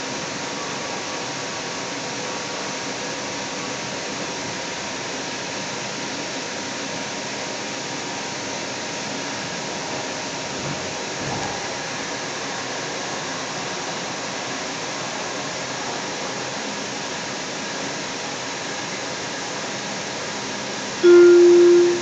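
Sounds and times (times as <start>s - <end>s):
light rail car running: 21.0s - 22.0s
onboard chime tone: 21.0s - 22.0s.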